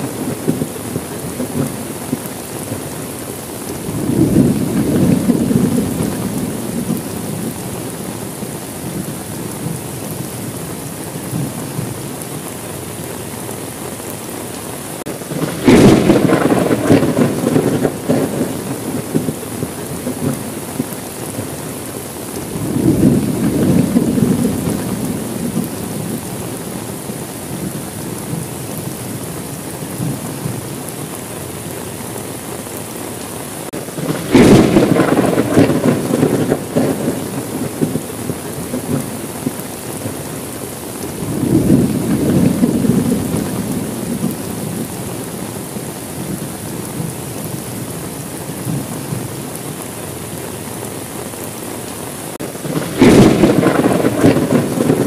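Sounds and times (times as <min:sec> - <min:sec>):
thunder rumbling: 0:00.0 - 0:13.4, 0:14.0 - 0:32.4, 0:33.6 - 0:51.7, 0:52.3 - 0:55.0
steady rain: 0:00.0 - 0:55.0
sharp thunderclap: 0:03.8 - 0:07.5, 0:15.0 - 0:20.6, 0:22.4 - 0:26.3, 0:33.7 - 0:40.2, 0:41.2 - 0:44.9, 0:52.4 - 0:55.0.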